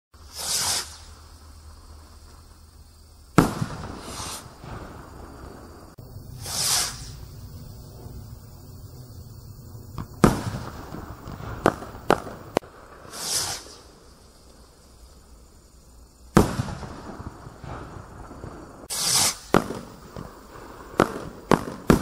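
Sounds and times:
firework rocket bang: 0:00.2 - 0:01.2, 0:03.3 - 0:14.0, 0:16.3 - 0:22.0
rocket whoosh: 0:00.2 - 0:01.6, 0:03.4 - 0:14.2, 0:16.4 - 0:22.0
sharp cracks: 0:09.9 - 0:14.6, 0:16.3 - 0:17.9, 0:18.8 - 0:20.3.

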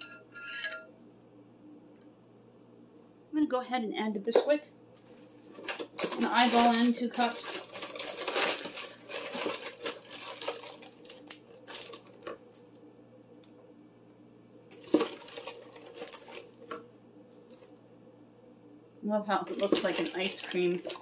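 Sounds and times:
box rustling: 0:05.2 - 0:12.2, 0:14.7 - 0:16.4, 0:19.5 - 0:21.0.

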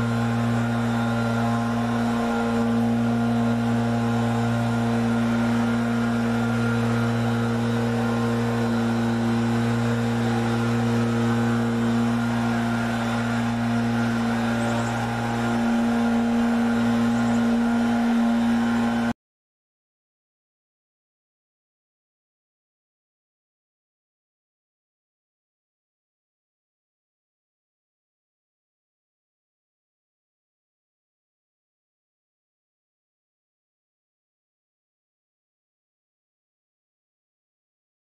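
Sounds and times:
low machine hum: 0:00.0 - 0:19.2.

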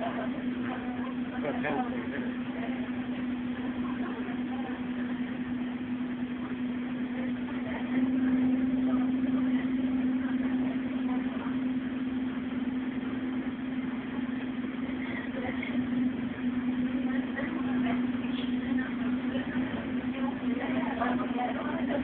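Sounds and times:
bus engine hum: 0:00.0 - 0:22.0.

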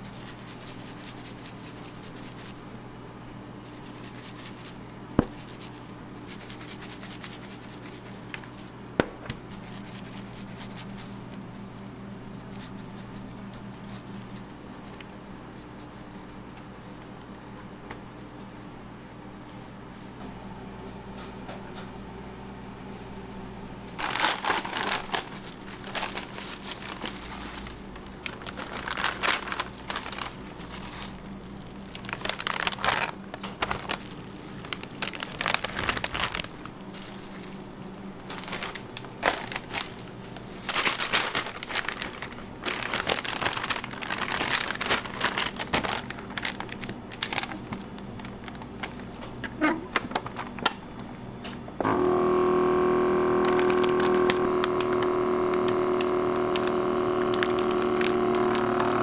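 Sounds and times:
plastic gloves and bag crinkling: 0:00.0 - 0:19.9, 0:24.0 - 0:51.0, 0:51.9 - 0:59.0
steady low hum: 0:00.0 - 0:59.0.

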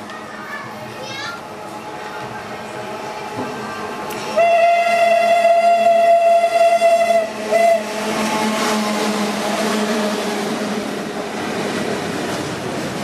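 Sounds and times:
train rumbling: 0:00.0 - 0:13.0
locomotive whistle: 0:04.3 - 0:09.0.

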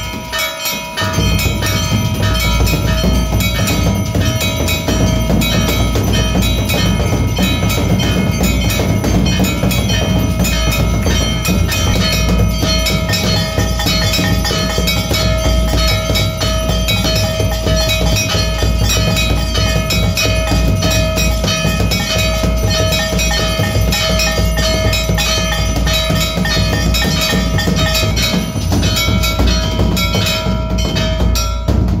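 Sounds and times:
bells and drum clanging: 0:00.0 - 0:32.0
held ringing bell tone: 0:00.0 - 0:32.0.

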